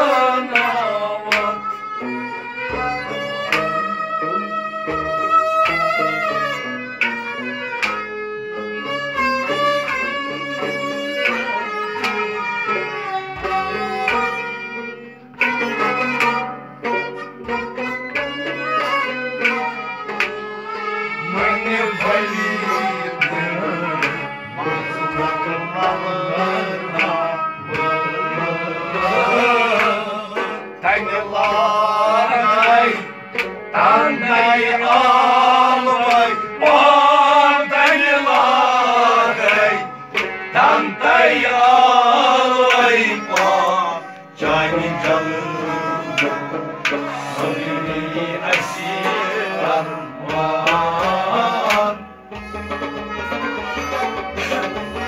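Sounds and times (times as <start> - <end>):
person singing: 0.0 - 2.2, 21.2 - 33.1, 33.8 - 55.0
harmonium chords: 0.0 - 55.0.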